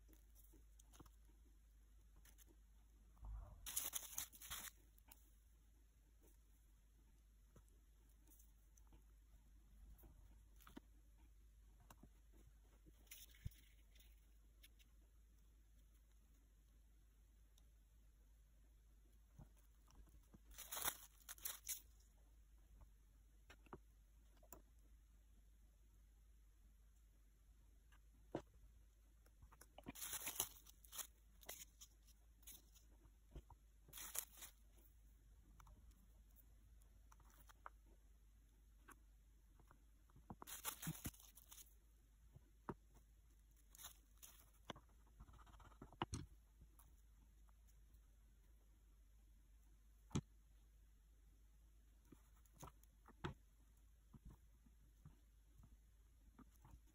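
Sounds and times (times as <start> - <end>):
plastic sheet crinkling: 3.6 - 4.9, 20.5 - 21.9, 29.9 - 32.8, 33.9 - 34.6, 40.5 - 41.8
scratchy rustle: 3.6 - 5.2, 20.2 - 22.0, 29.8 - 33.0, 33.9 - 34.9, 40.4 - 41.8, 43.4 - 44.7.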